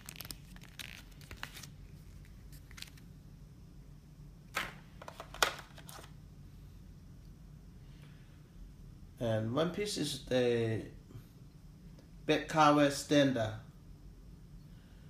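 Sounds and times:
paper rustling: 0.0s - 3.1s, 4.5s - 6.1s.

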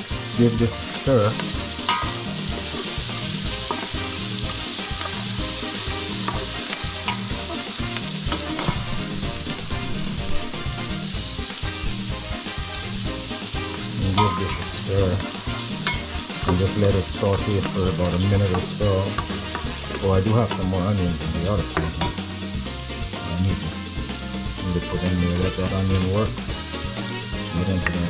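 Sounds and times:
vegetables sizzling in a pot: 0.0s - 28.0s
spoon scraping and tapping pot: 18.5s - 20.7s.

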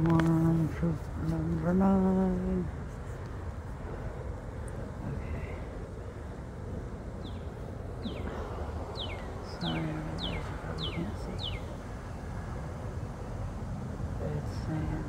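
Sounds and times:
low background rumble: 0.0s - 15.0s
songbird whistling: 9.0s - 9.4s, 10.2s - 11.7s.

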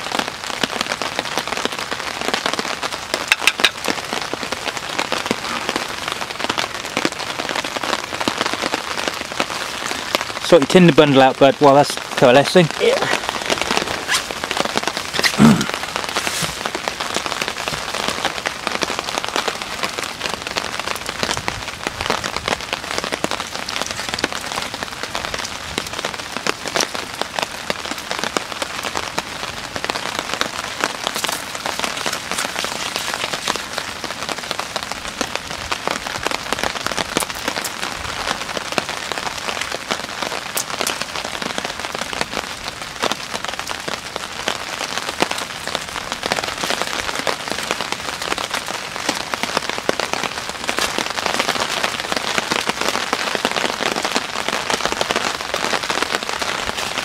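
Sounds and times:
heavy rain on a tarp: 0.0s - 57.0s.

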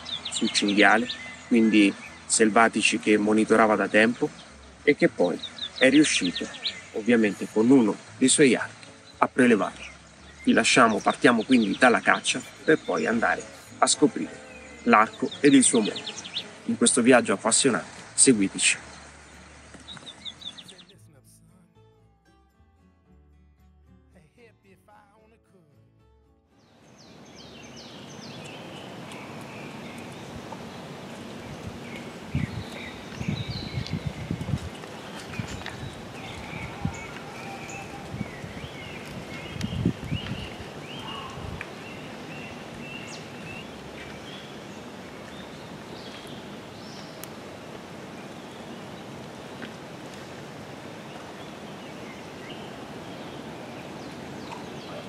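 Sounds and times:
bird chirping: 0.0s - 21.0s, 26.6s - 47.4s, 51.0s - 55.0s
steady background hiss: 26.8s - 55.0s
faint short bird calls: 40.9s - 41.6s.

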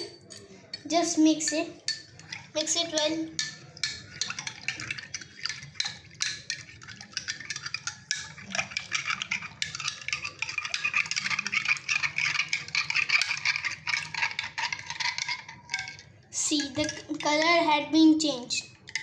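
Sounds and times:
spoon stirring in glass tumbler: 0.0s - 18.0s, 18.6s - 19.0s.

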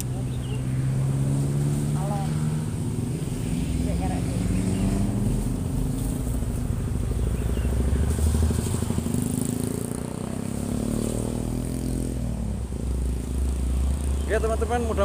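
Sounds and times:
passing vehicle engine: 0.0s - 15.0s.

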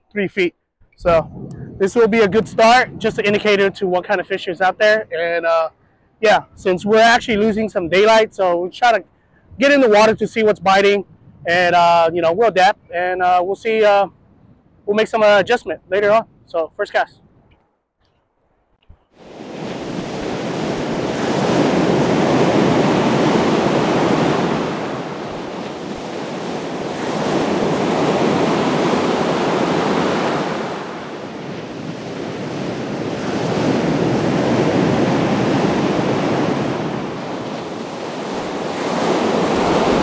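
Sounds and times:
wind on microphone: 1.0s - 4.5s, 9.4s - 12.9s, 18.9s - 40.0s
surf washing onto beach: 19.2s - 40.0s.

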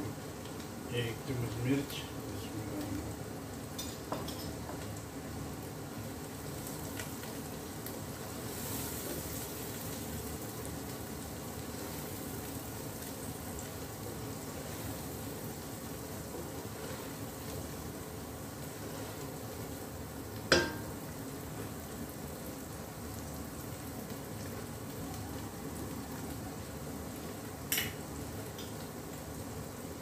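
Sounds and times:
onions sizzling in a pot: 0.0s - 30.0s.

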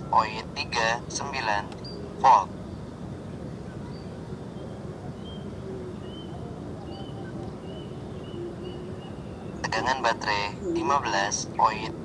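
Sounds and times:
low outdoor rumble: 0.0s - 12.0s
faint bird chirps: 1.8s - 10.9s.

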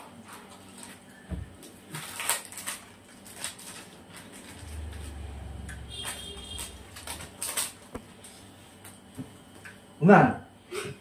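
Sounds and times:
plastic wrappers rustling: 0.0s - 8.5s.

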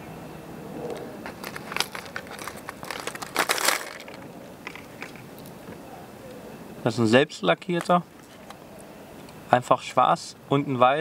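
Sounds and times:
plastic lures rattling: 1.3s - 5.2s.

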